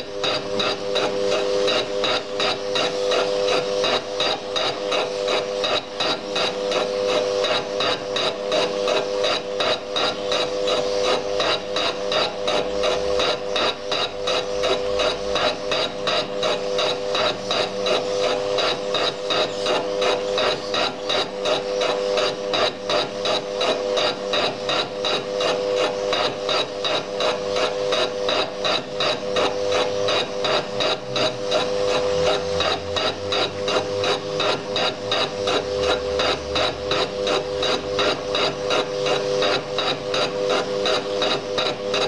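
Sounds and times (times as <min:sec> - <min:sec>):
cutting tool striking metal: 0:00.0 - 0:42.0
lathe humming: 0:00.0 - 0:42.0.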